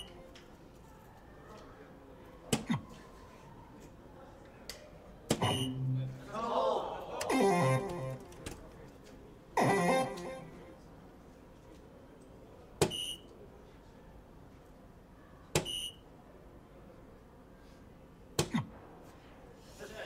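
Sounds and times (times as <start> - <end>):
short electronic beep: 5.4 - 6.2.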